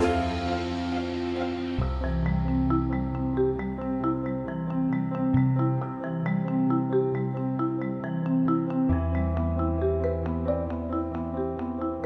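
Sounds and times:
held bass note: 0.0s - 3.2s
mallet percussion melody: 0.0s - 12.0s.

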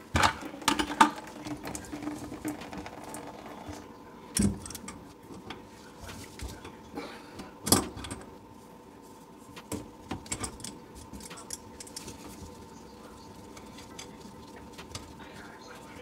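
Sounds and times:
faint steady hum: 0.0s - 16.0s
metal hose fittings clicking and rattling: 10.2s - 12.4s.

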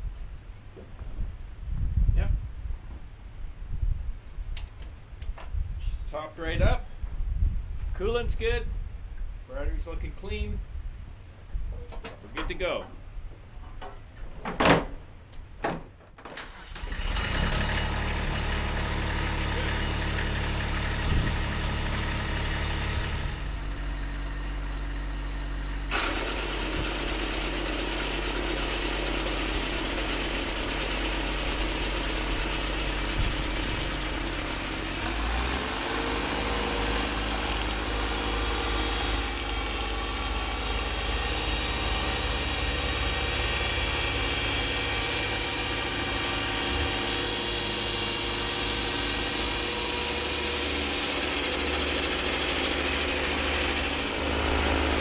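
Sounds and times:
snowblower hissing: 16.4s - 23.8s, 25.8s - 55.0s
tractor diesel engine running: 16.4s - 55.0s.

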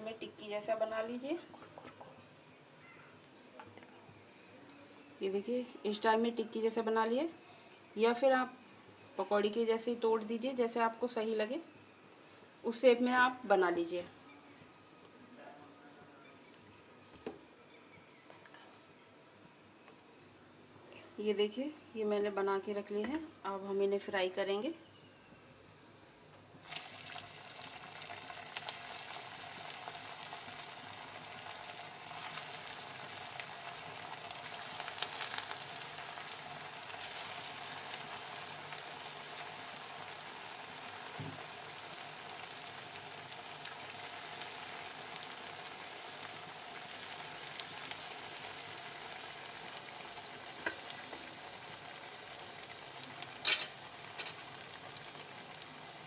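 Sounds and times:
fritters deep-frying sizzle: 26.6s - 56.0s.

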